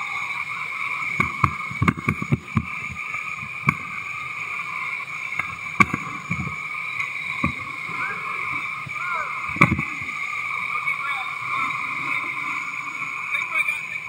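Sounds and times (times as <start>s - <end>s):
whitewater rushing: 0.0s - 14.0s.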